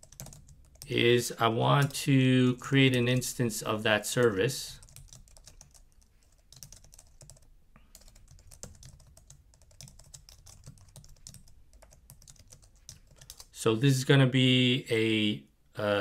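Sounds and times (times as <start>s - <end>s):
typing on a keyboard: 0.0s - 0.9s, 4.2s - 13.5s.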